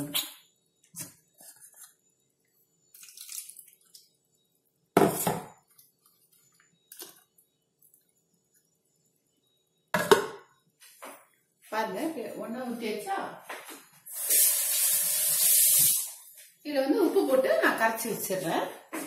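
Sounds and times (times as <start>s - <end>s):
water pouring into pot: 2.9s - 4.0s.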